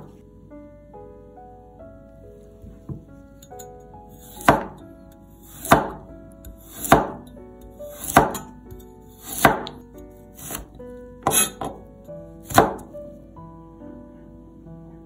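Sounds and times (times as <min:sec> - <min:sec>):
background music: 0:00.0 - 0:15.0
cleaver slicing carrot: 0:04.2 - 0:04.8, 0:05.4 - 0:07.2, 0:07.9 - 0:08.5, 0:09.2 - 0:09.8, 0:10.4 - 0:11.7, 0:12.5 - 0:12.8.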